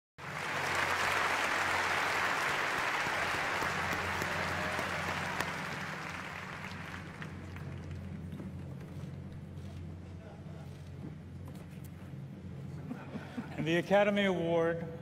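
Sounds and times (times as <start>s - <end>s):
audience applauding: 0.2s - 8.6s.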